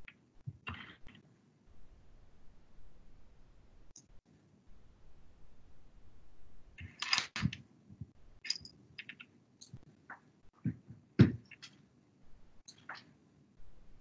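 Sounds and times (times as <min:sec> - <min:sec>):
small objects clicking and tapping: 0:06.8 - 0:07.6, 0:08.4 - 0:11.8.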